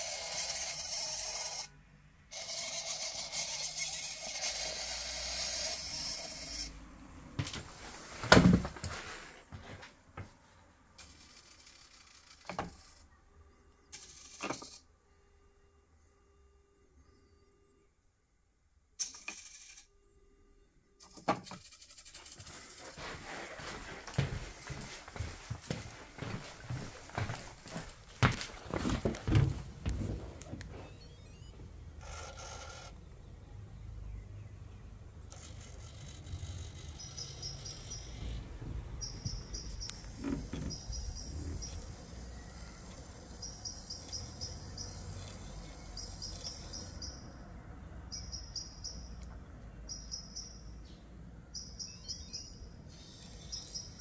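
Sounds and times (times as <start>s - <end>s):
footsteps: 7.4s - 10.6s, 22.3s - 31.0s
high-pitched chirping trills: 36.8s - 54.0s.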